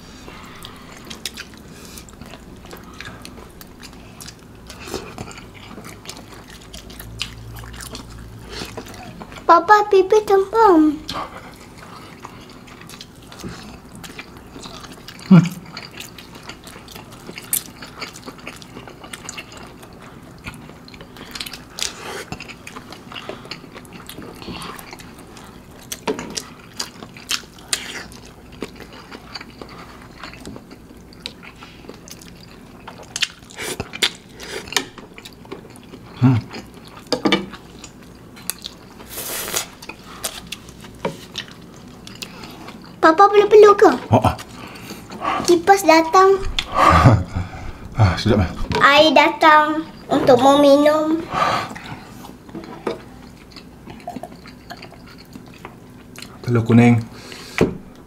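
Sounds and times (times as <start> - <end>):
noodles slurped and chewed: 50.0 - 56.4.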